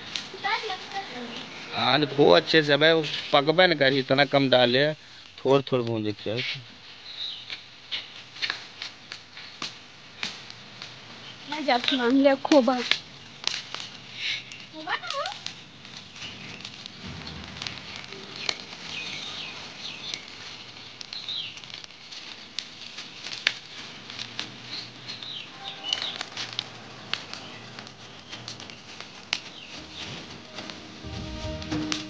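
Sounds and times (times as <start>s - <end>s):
plants crackling in fire: 0.0s - 32.0s.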